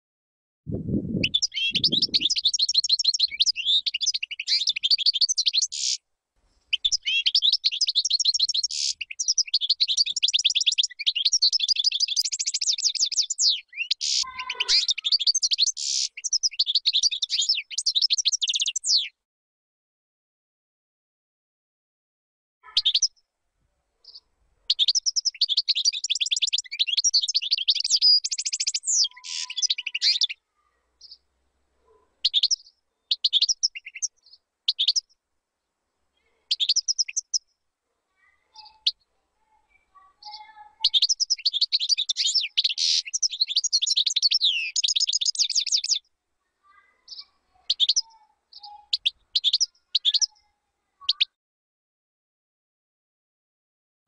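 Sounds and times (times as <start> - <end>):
bird chirps: 0.8 - 6.0, 6.7 - 19.2, 22.6 - 23.2, 24.0 - 35.2, 36.2 - 37.5, 38.1 - 51.4
finch twittering and trilling: 1.2 - 6.0, 6.7 - 19.1, 22.6 - 23.2, 24.0 - 30.4, 32.2 - 35.1, 36.5 - 37.4, 38.2 - 39.0, 40.0 - 46.0, 46.8 - 51.4.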